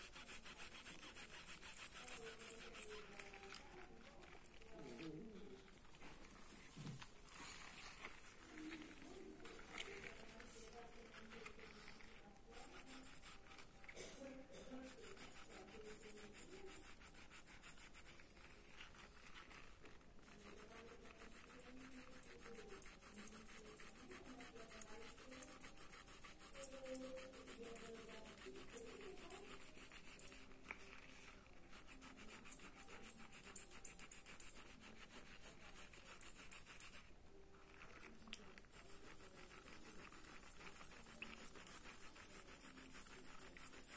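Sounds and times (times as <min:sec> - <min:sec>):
pencil scratching on paper: 0:00.0 - 0:43.9.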